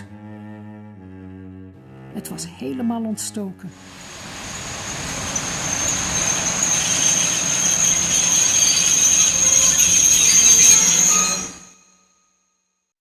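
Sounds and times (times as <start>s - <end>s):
rushing rumbling train noise: 3.7s - 11.8s
train wheels squealing on rails: 3.8s - 12.2s.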